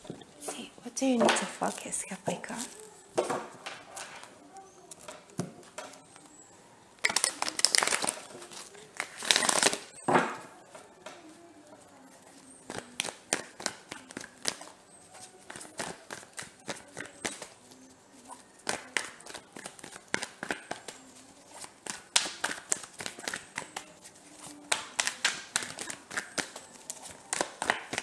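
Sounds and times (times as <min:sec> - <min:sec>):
card slaps and flicks: 0:12.7 - 0:14.7, 0:18.6 - 0:21.0, 0:21.6 - 0:23.8, 0:24.4 - 0:28.0.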